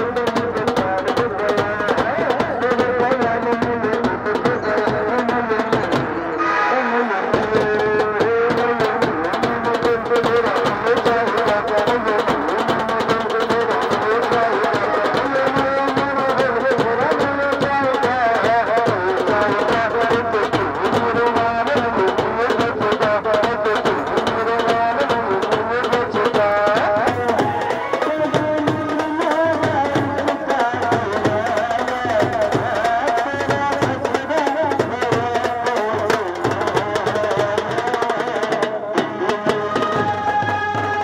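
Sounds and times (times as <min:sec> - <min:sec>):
music with steady drumming: 0:00.0 - 0:41.0.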